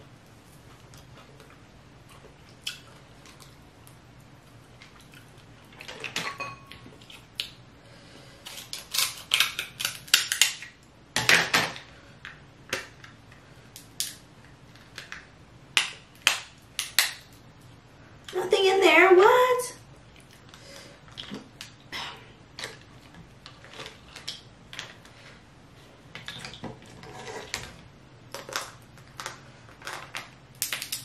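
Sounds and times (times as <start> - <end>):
crab shells cracking: 8.4 - 10.8, 12.7 - 17.4, 28.3 - 31.0.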